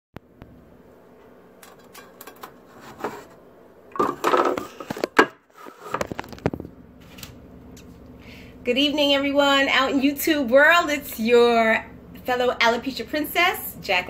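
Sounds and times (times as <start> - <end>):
rustling scrape: 2.6 - 3.4, 4.5 - 7.3.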